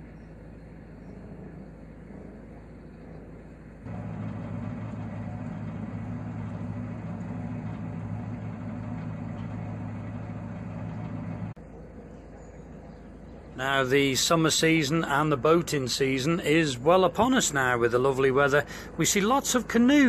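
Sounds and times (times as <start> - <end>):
boat diesel engine running: 3.9 - 14.4.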